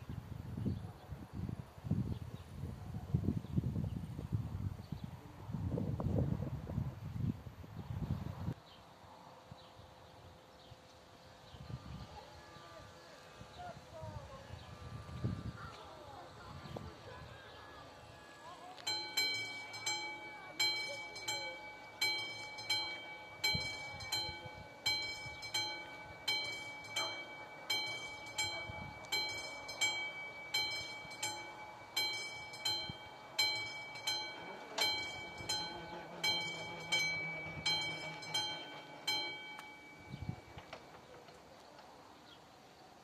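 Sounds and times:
level crossing bell ringing: 18.5s - 40.8s.

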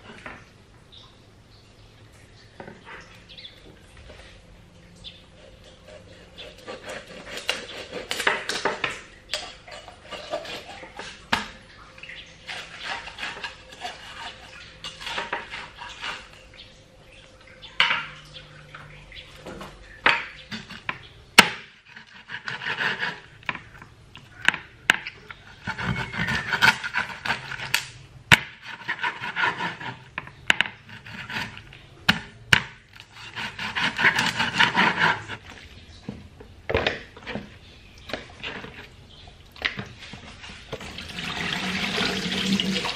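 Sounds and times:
cleaver cutting through meat: 5.4s - 8.6s, 25.5s - 27.8s, 32.9s - 35.3s.

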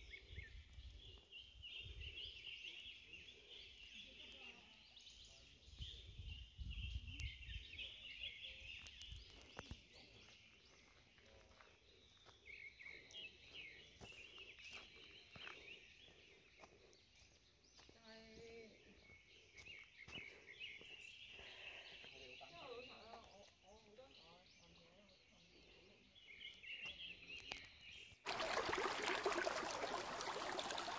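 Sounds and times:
small birds chirping and trilling: 0.0s - 28.2s
wind rumble on microphone: 5.8s - 7.7s.

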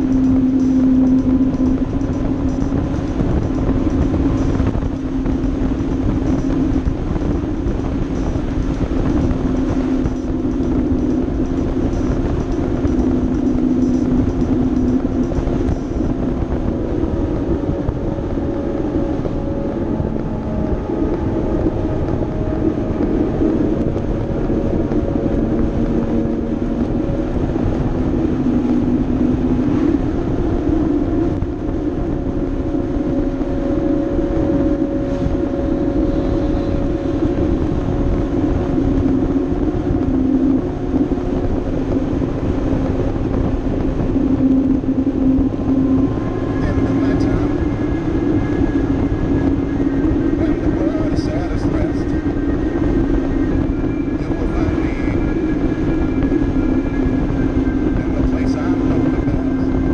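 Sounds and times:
motorcycle engine hum: 0.0s - 59.9s
road noise: 0.0s - 59.9s
wind noise: 0.0s - 59.9s.

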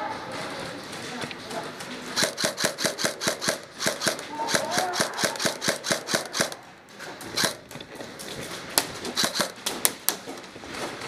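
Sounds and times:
airsoft gunshots: 2.2s - 6.6s, 7.3s - 7.7s, 9.1s - 9.7s.

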